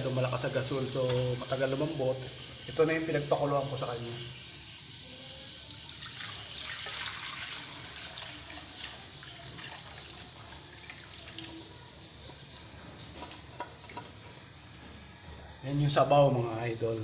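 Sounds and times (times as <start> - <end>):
broth pouring into metal wok: 0.0 - 13.4.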